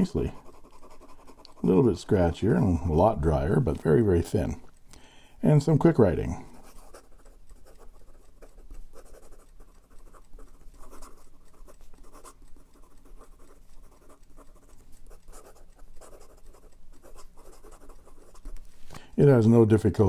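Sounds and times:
pen scratching on paper: 0.0s - 1.9s, 6.6s - 18.7s.

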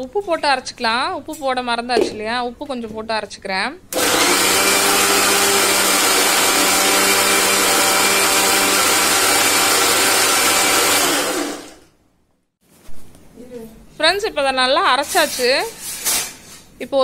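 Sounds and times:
mixer grinder motor running: 3.9s - 11.9s.

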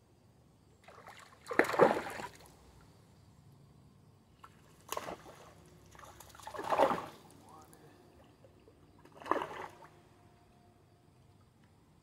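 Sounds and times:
water splashing: 0.8s - 2.5s, 4.4s - 7.7s, 9.0s - 10.0s.

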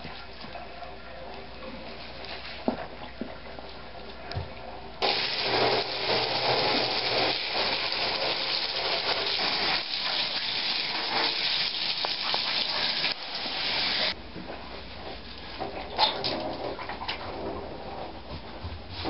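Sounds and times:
water splashing into bathtub: 5.0s - 14.2s.

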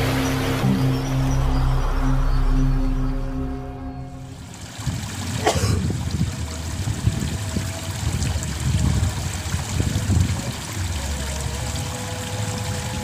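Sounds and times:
low rumble: 0.0s - 9.2s
water trickling: 4.2s - 13.0s.

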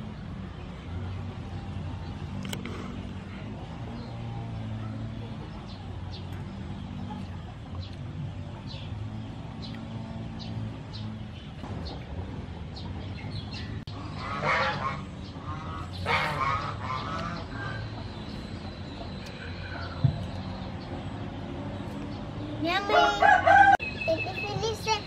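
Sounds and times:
farmyard fowl calling: 13.9s - 18.1s, 22.9s - 23.8s
faint high chirps: 23.8s - 25.0s.

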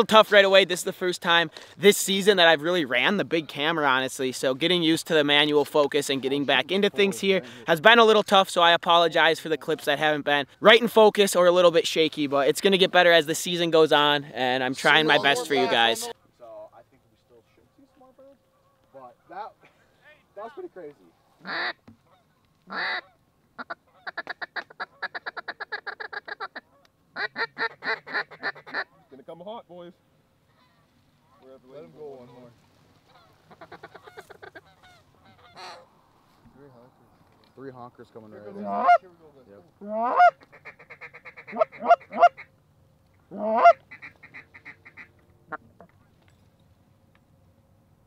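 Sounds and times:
goose honking: 14.7s - 16.1s, 21.4s - 29.1s, 32.2s - 35.9s, 38.5s - 39.1s, 39.8s - 42.5s, 43.3s - 45.9s
duck quacking: 14.8s - 16.1s, 21.4s - 29.0s, 33.1s - 35.9s, 38.5s - 39.0s, 39.8s - 42.5s, 43.3s - 45.9s
rapid quiet clucks: 24.0s - 27.0s, 33.5s - 35.8s.

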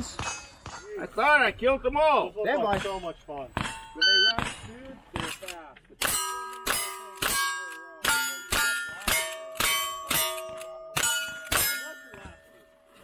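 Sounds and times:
steel plate ringing clang: 6.0s - 12.8s.

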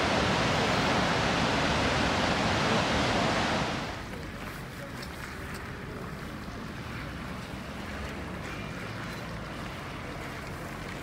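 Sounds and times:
wind blowing across microphone: 0.0s - 8.1s.

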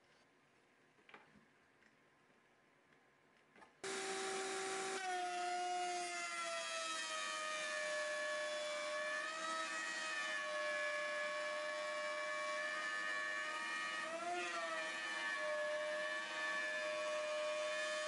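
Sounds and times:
router cutting wood whine: 3.8s - 18.0s.

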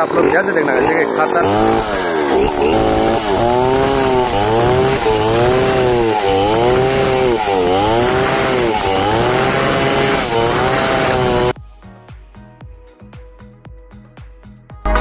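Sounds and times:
chainsaw cutting through log: 0.0s - 11.6s.

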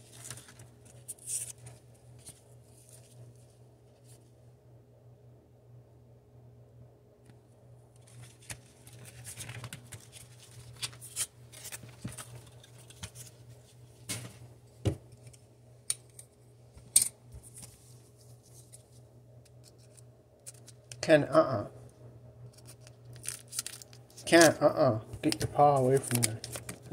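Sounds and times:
foil wrapper crinkling: 0.0s - 3.1s, 8.0s - 13.5s, 22.4s - 24.6s, 25.2s - 26.9s.

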